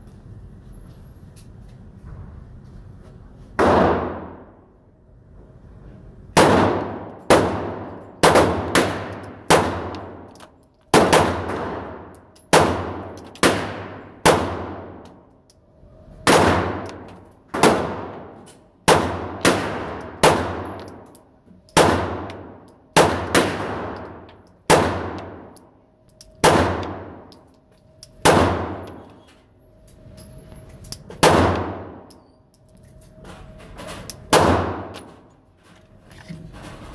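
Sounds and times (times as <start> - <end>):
pistol shots echoing indoors: 3.6 - 4.7, 6.3 - 15.3, 16.2 - 29.3, 31.2 - 32.3, 34.2 - 35.3.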